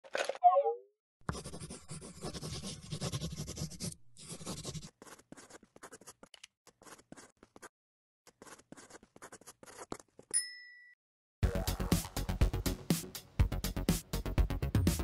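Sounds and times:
pen scratching on paper: 1.2s - 7.7s, 8.3s - 10.3s.

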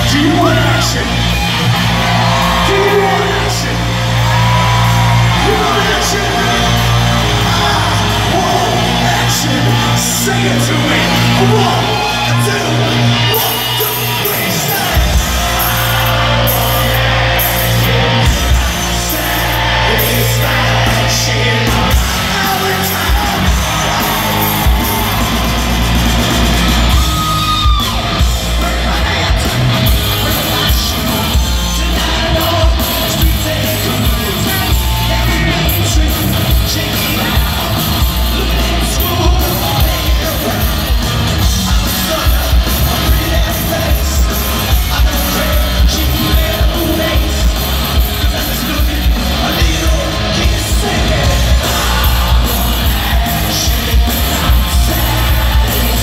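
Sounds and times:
drums: 0.0s - 56.0s
live metal band playing: 0.0s - 56.0s
singer singing and shouting: 0.0s - 56.0s.

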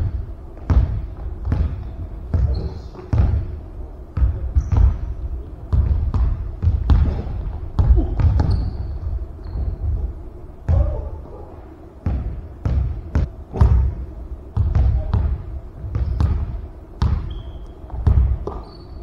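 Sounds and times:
basketball bouncing on wood floor: 0.0s - 3.5s, 4.2s - 10.0s, 12.0s - 14.0s, 14.6s - 18.8s
shoe squeaks: 2.4s - 3.1s, 4.6s - 5.0s, 8.2s - 10.0s, 16.0s - 16.3s, 17.2s - 19.0s.

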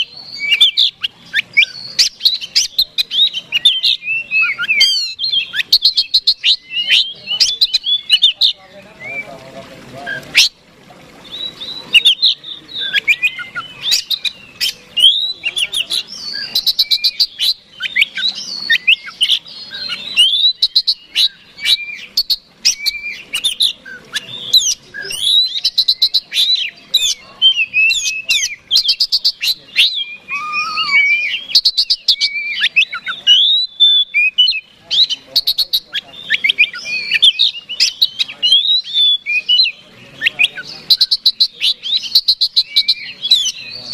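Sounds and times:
bird singing chips and trills: 0.0s - 9.4s, 11.2s - 43.9s.

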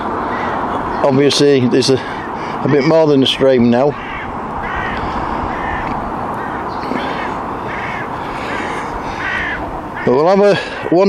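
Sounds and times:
crows cawing: 0.0s - 11.0s
wind on microphone: 2.1s - 10.0s.

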